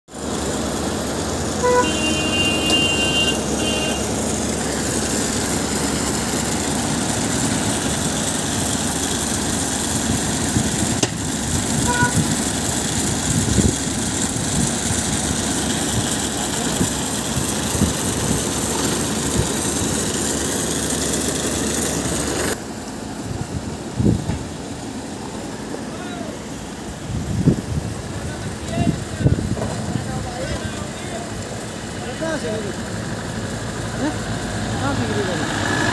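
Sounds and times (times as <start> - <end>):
loud steady rushing noise: 0.1 - 35.9
vehicle horn: 1.6 - 4.4, 11.8 - 12.4.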